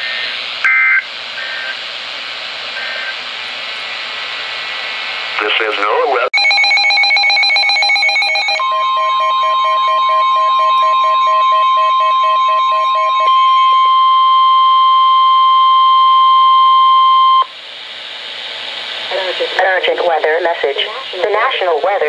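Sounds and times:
higher steady tone: 6.4s - 17.5s
rapid electronic alarm beeping: 6.4s - 17.5s
steady alarm tone: 6.4s - 17.6s.

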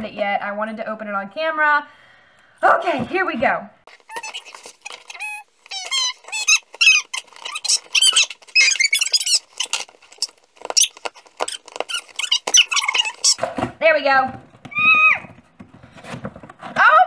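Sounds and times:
packing tape squeaking as cut: 3.9s - 13.5s.

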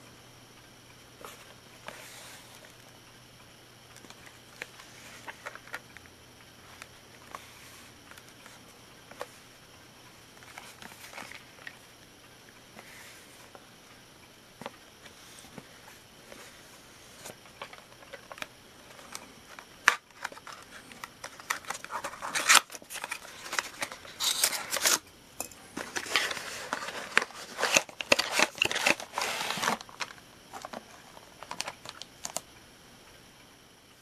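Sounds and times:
plastic wrap and cardboard crinkling: 17.2s - 25.0s, 25.8s - 32.4s.

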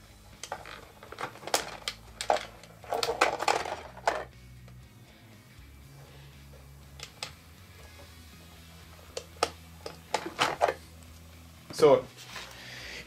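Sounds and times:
plastic parts and wires rattling: 0.3s - 4.3s, 9.1s - 10.8s.

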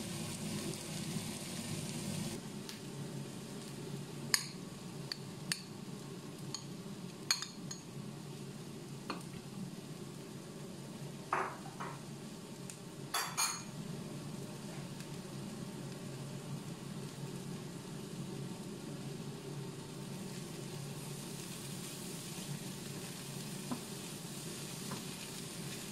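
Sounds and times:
metal spoon clinking on dishes: 13.2s - 13.7s.

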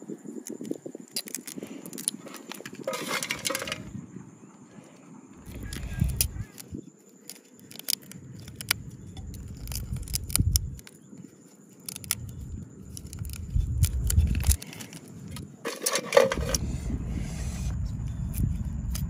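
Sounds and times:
beetle shell cracking and snapping: 0.3s - 3.9s, 5.4s - 15.5s
low rumble: 16.3s - 19.0s.

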